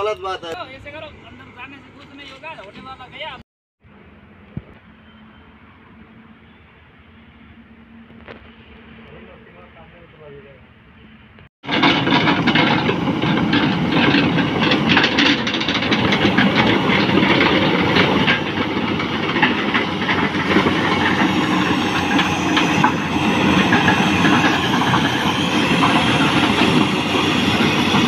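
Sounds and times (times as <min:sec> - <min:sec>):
diesel engine running: 0:11.6 - 0:28.0
track links clanking and squeaking: 0:11.6 - 0:28.0.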